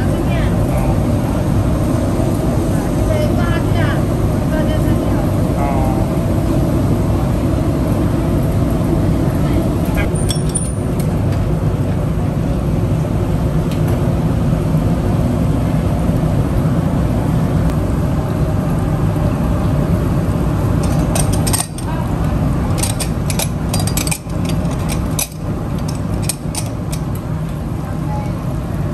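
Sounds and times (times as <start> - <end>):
kitchen machinery rumble: 0.0 - 28.9
metal utensils clinking on crockery: 20.8 - 22.0, 22.7 - 27.1.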